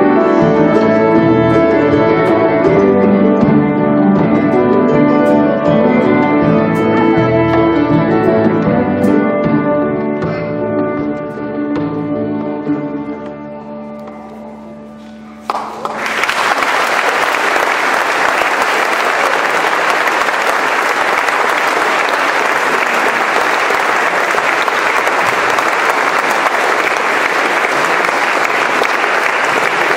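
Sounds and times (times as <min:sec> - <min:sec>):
audience applause: 0:15.4 - 0:29.9.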